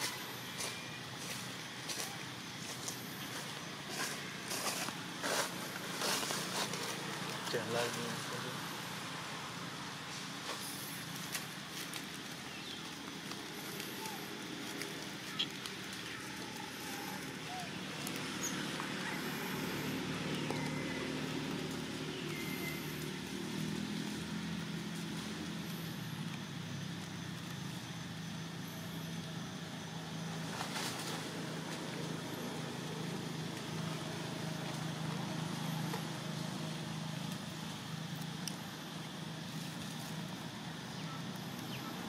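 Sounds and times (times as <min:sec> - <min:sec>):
vehicle engine humming: 0:00.0 - 0:42.0.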